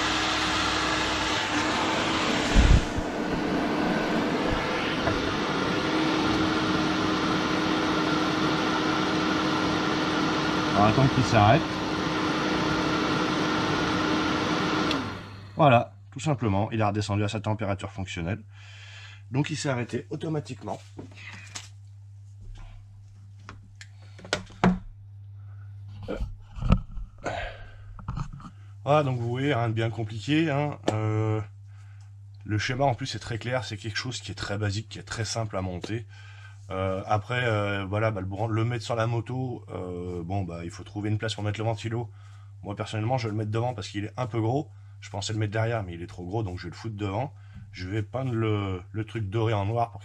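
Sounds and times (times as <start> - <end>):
electric cooling fan whirring: 0.0 - 50.0
low electrical hum: 14.9 - 50.0.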